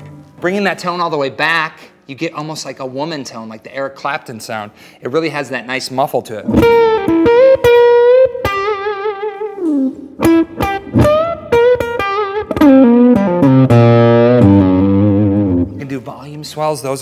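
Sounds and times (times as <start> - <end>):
guitar chord ringing: 6.6 - 9.4, 10.2 - 15.8.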